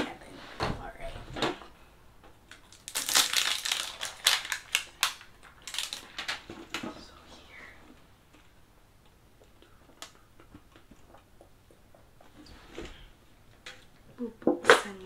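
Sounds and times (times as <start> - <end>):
plastic shrink-wrap crinkling: 2.5 - 6.8.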